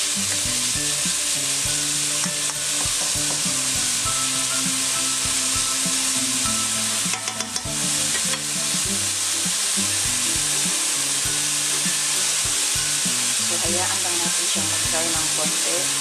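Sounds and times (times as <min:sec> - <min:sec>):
vegetables sizzling in oil: 0:00.0 - 0:16.0
spatula scraping and tapping pan: 0:07.0 - 0:08.6.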